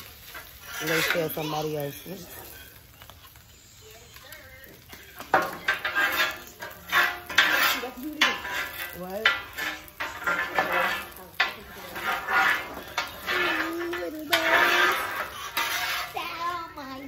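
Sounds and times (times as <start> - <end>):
metal utensils scraping griddle: 0.0 - 17.0.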